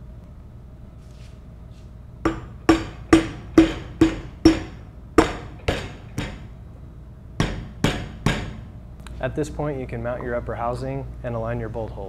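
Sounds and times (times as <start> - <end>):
mallet tapping on steel: 2.3 - 6.4.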